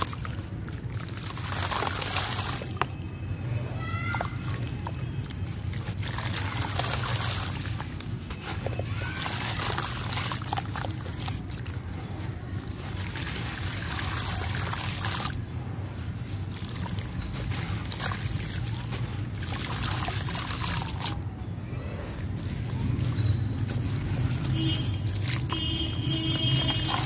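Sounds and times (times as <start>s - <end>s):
splashes and drips in water: 0.0s - 21.4s, 22.4s - 27.0s
wet cement crumbling in hands: 4.1s - 21.4s.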